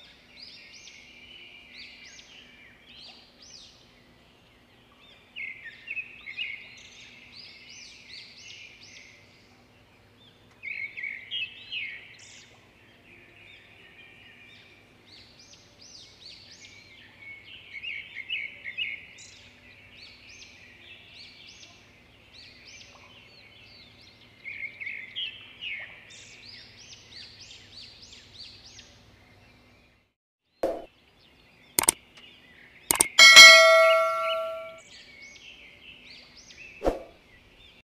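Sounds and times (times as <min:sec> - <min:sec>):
sharp clicks: 0:32.9 - 0:34.7.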